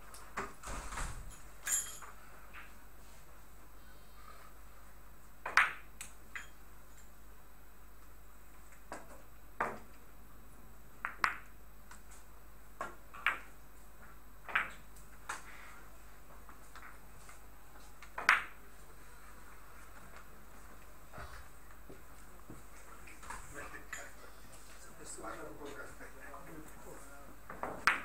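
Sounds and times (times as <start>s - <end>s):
billiard balls clicking: 5.4s - 7.2s, 11.0s - 15.5s, 18.0s - 18.6s.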